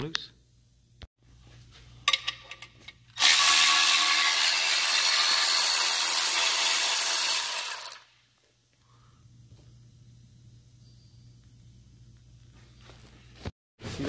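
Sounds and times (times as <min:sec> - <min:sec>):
cordless electric ratchet running: 0:03.2 - 0:08.1.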